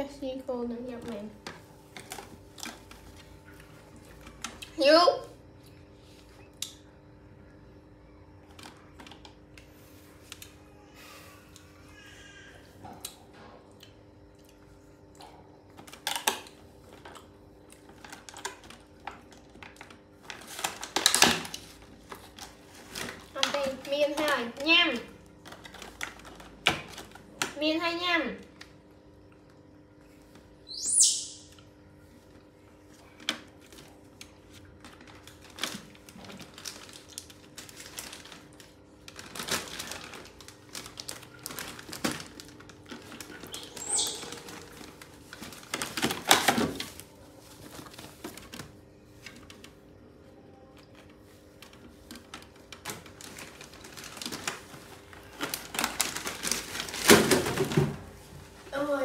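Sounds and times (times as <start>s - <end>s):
plastic crinkling: 17.8s - 27.5s, 32.9s - 49.8s, 50.7s - 59.0s
baby monkey squeaking: 30.7s - 31.5s, 43.5s - 44.5s.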